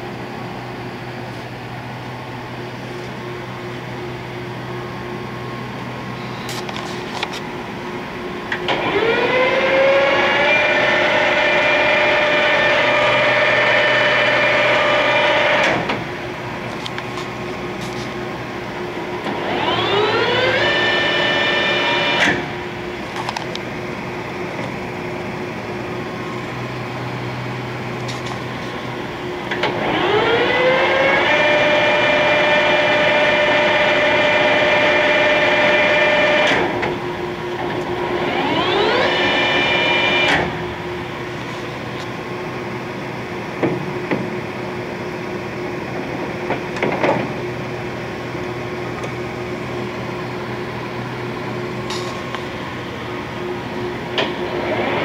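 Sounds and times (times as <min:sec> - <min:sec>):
steady hum: 0:00.0 - 0:55.0
lathe gears whining: 0:08.5 - 0:16.8, 0:18.7 - 0:23.4, 0:28.1 - 0:42.0.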